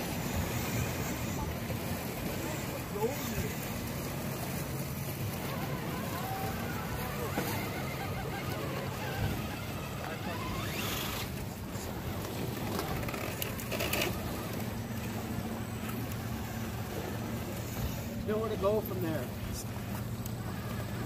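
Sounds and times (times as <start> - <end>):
low hum: 0.0 - 21.0
toy truck motor whirring: 5.5 - 11.4, 12.9 - 14.6.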